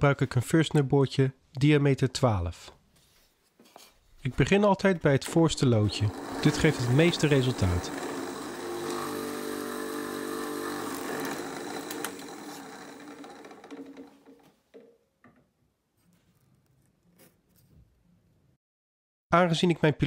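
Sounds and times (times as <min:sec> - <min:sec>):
drill press motor hum: 0:05.8 - 0:14.5.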